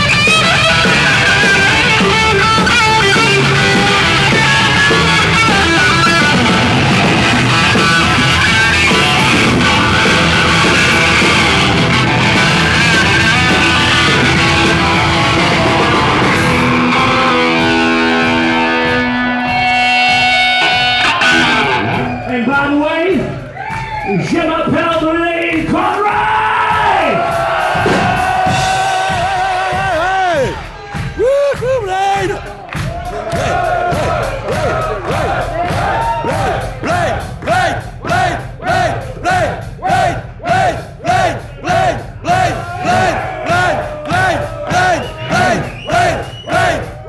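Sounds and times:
lead electric guitar bending notes: 0.0s - 22.2s
live hard rock band: 0.0s - 23.6s, 24.9s - 47.0s.

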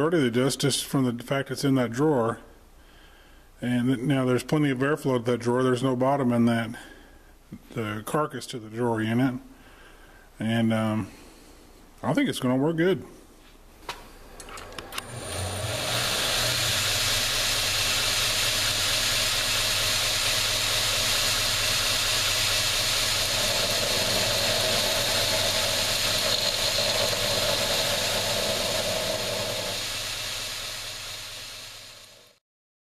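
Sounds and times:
belt grinder motor humming: 14.3s - 32.4s
knife grinding on abrasive belt: 15.0s - 32.4s.

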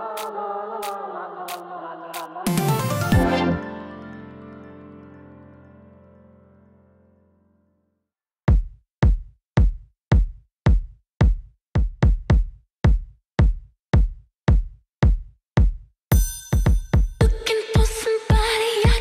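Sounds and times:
drum machine kick drum: 8.5s - 19.0s
hi-hats and instruments: 16.1s - 18.1s.

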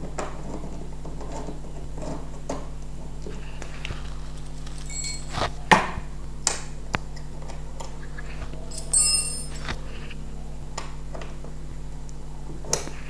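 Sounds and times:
steady low hum: 0.0s - 13.0s
light clicks of metal parts: 3.9s - 5.6s, 8.7s - 9.8s
metallic clink: 4.6s - 5.6s, 8.7s - 9.8s.

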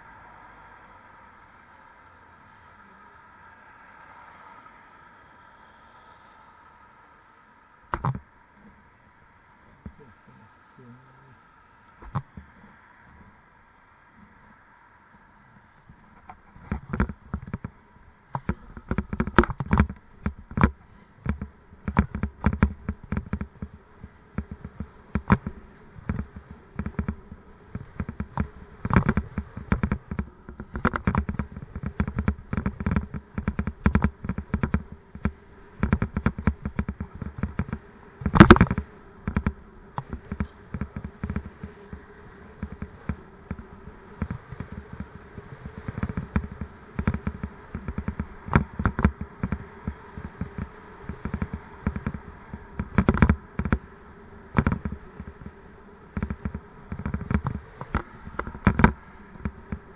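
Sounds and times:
faint steady buzz: 0.0s - 59.9s
camera mount rattling and knocking: 8.0s - 8.2s, 16.2s - 23.8s, 24.4s - 41.7s, 42.6s - 53.8s, 54.6s - 55.5s, 56.2s - 59.8s.

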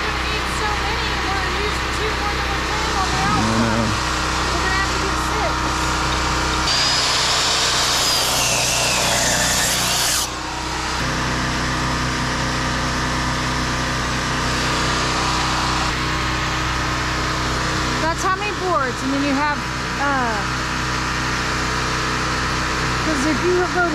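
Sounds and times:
steady engine hum: 0.0s - 8.0s, 10.3s - 23.9s
power tool whining: 0.6s - 17.8s.

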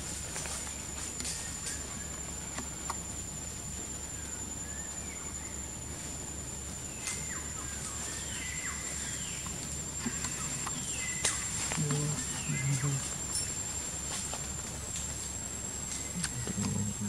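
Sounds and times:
snaps and rustles in branches: 0.0s - 3.0s, 9.4s - 12.4s
high-pitched insect whine: 0.0s - 17.0s.

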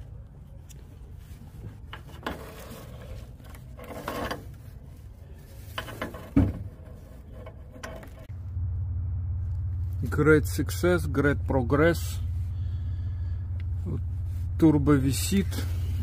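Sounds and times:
wrench scraping metal on metal: 1.9s - 4.6s
steady low hum: 6.5s - 16.0s.

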